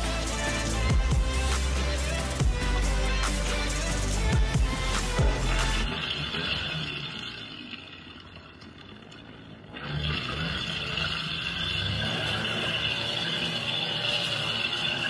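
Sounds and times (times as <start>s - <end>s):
string trimmer engine revving: 9.7s - 15.0s
trimmer line cutting grass: 9.7s - 15.0s.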